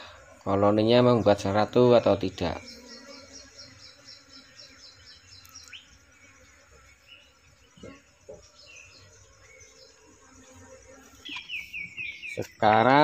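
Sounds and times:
high insect trill: 0.0 - 13.0
short bird chirps: 11.2 - 12.5.

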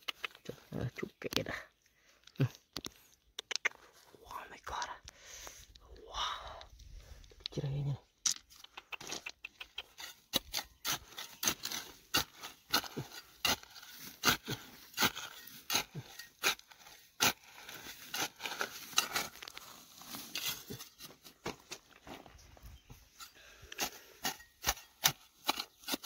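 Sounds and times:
sharp irregular clicks and scrapes: 8.2 - 21.1.

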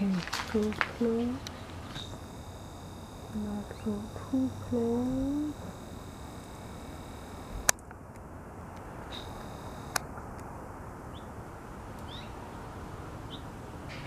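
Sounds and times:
sharp clicks: 0.0 - 10.5
outdoor hiss: 0.0 - 14.0
camcorder zoom motor whine: 0.3 - 7.9, 8.7 - 10.1
faint bird chirps: 9.1 - 10.0, 12.0 - 12.5.

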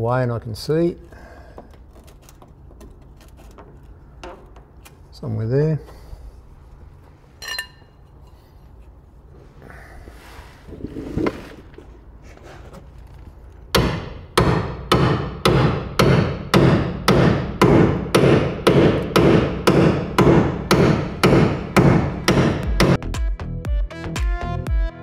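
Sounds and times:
hammer striking chisel on steel: 13.8 - 23.0.

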